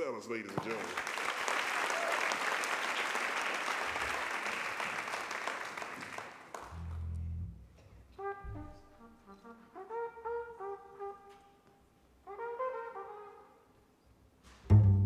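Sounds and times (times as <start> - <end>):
audience applauding: 0.5 - 7.0
trumpet notes: 6.7 - 13.8
low double bass note: 6.8 - 7.8, 14.7 - 15.0.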